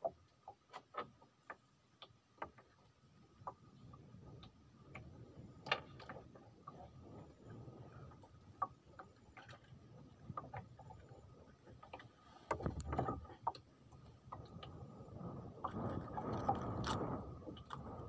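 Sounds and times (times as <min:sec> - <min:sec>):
clicks and knocks of fishing gear: 0:00.4 - 0:02.7, 0:04.4 - 0:06.8, 0:08.2 - 0:14.8, 0:15.6 - 0:18.0.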